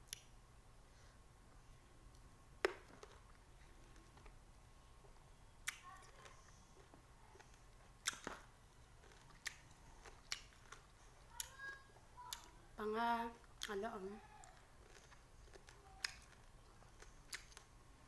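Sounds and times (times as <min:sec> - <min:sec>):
person eating with sharp smacks: 0:02.1 - 0:04.4, 0:05.6 - 0:11.6, 0:14.4 - 0:17.7.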